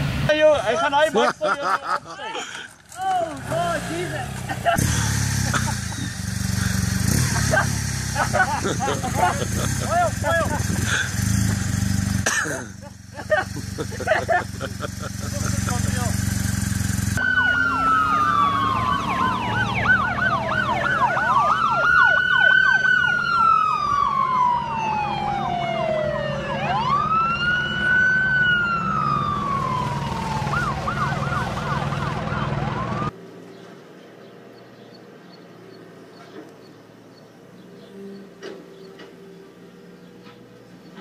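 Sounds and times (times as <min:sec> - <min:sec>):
police siren yelp and wail: 0:17.2 - 0:33.2.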